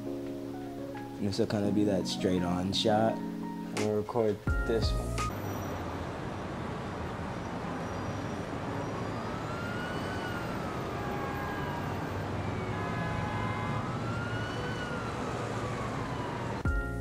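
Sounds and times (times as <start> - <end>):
steady low rumble: 4.5 - 5.4
emergency siren wailing: 4.9 - 16.7.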